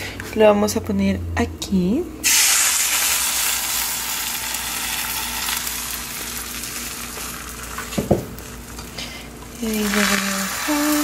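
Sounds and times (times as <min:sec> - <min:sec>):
eggs sizzling in frying pan: 0:02.2 - 0:11.0.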